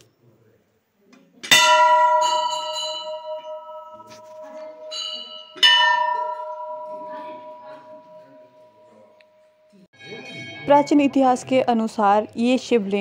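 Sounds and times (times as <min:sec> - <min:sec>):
large brass bell ringing: 0:01.5 - 0:11.5.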